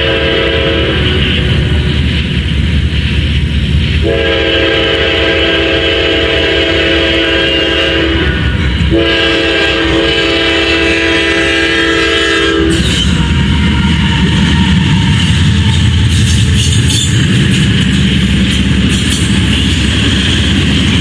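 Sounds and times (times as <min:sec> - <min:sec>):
train air horn blasts: 0:00.0 - 0:02.0, 0:04.0 - 0:17.1
low rumble of train: 0:00.0 - 0:21.0.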